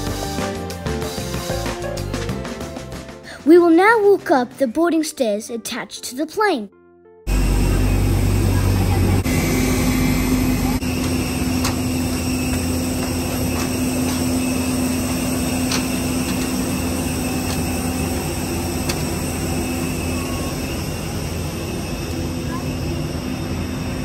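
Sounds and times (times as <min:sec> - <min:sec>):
faint high whine: 0:07.3 - 0:24.0
machinery low hum: 0:07.3 - 0:24.0.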